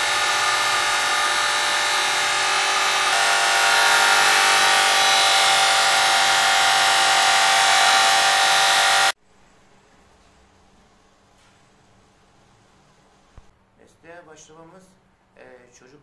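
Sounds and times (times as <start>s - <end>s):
blade grinding on wheel: 0.0s - 9.2s
electric motor whine: 0.0s - 9.2s.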